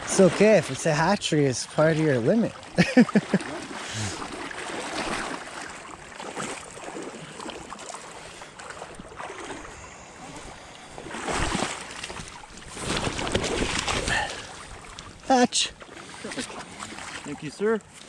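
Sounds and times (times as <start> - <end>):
river water sloshing: 0.0 - 18.0
fish thrashing and splashing: 1.7 - 15.2.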